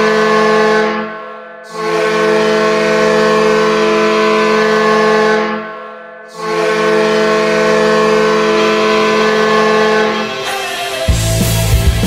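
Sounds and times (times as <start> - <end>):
goal horn blasts: 0.0 - 11.0.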